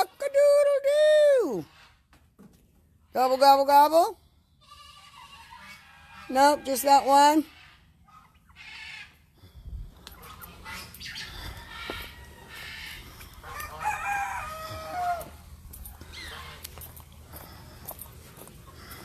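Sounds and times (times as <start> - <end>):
chickens calling: 0.0 - 0.9, 1.5 - 19.0
rooster crowing: 11.4 - 15.4.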